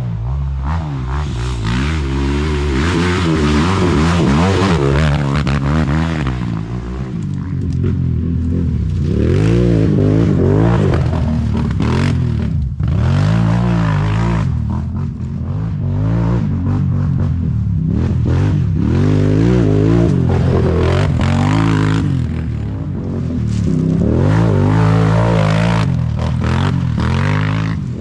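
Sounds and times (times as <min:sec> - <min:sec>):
atv engine revving: 0:00.0 - 0:28.0.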